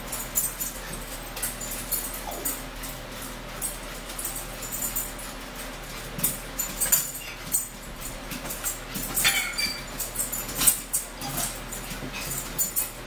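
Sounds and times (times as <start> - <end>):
forks clicking on plates: 6.2 - 13.0.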